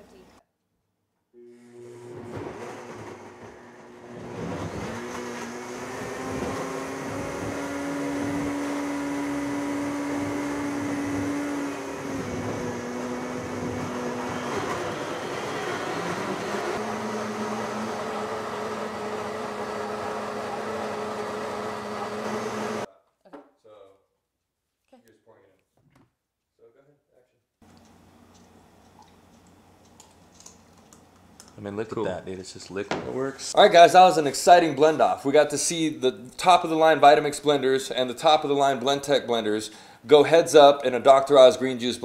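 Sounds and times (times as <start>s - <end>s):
blender motor whining: 1.4s - 22.9s.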